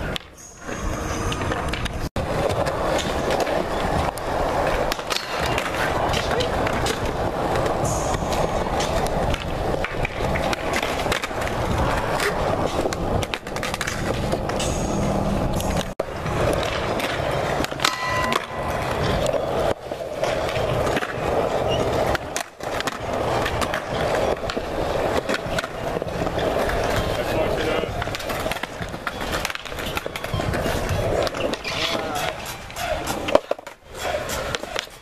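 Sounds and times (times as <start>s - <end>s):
skateboard clacking on ground: 0.0s - 35.0s
skateboard wheels rolling: 0.0s - 35.0s
brief high-pitched tone: 17.9s - 19.7s.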